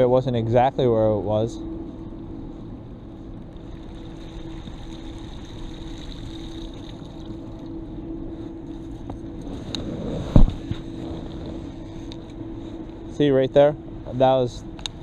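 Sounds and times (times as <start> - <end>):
constant low hum: 0.0 - 15.0.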